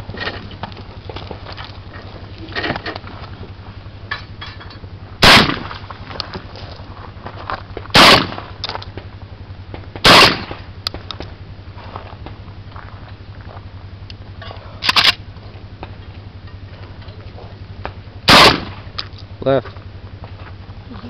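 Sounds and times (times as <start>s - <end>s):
loud shotgun shots: 5.2s - 5.8s, 7.9s - 8.5s, 10.0s - 10.6s, 18.3s - 18.9s.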